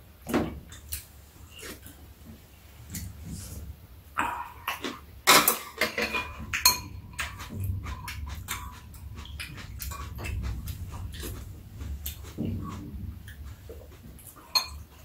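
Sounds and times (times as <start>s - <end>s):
utensils clinking against bowls: 4.8s - 15.0s.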